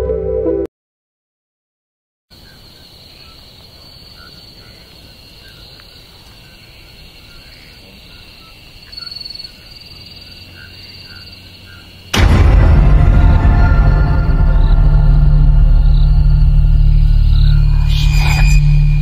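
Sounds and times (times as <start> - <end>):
insects droning: 2.3 - 12.2, 13.6 - 19.0
low rumble: 12.2 - 19.0.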